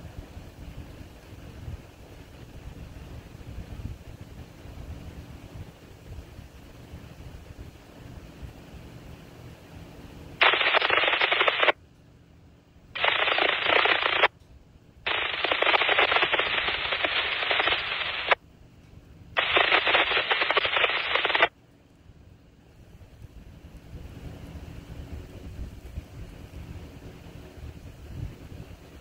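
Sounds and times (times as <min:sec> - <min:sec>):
radio scanner static crackling: 0:10.4 - 0:11.8, 0:13.0 - 0:14.3, 0:15.1 - 0:18.4, 0:19.4 - 0:21.6.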